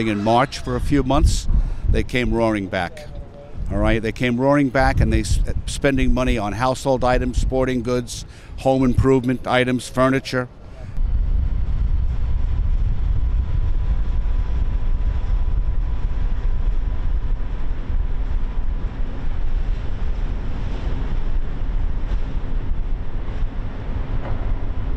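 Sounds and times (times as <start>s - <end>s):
wind rumbling on microphone: 0.0s - 24.9s.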